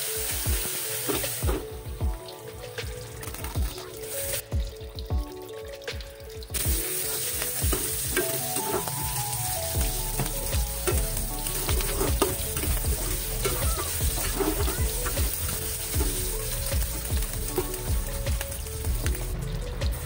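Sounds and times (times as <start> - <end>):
meat sizzling in wok: 0.0 - 4.4, 6.4 - 20.0
metal spatula scraping pan: 11.6 - 16.2.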